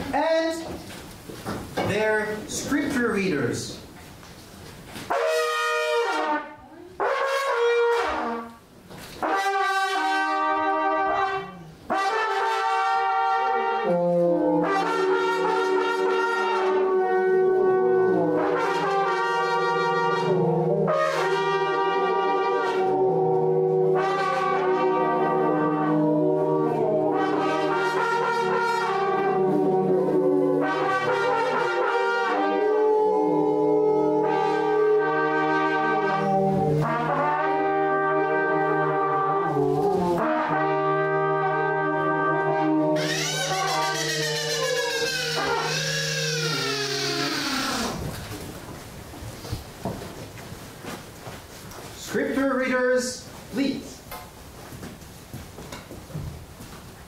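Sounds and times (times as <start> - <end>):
trumpet playing: 5.0 - 48.2
low held brass note: 9.2 - 44.7.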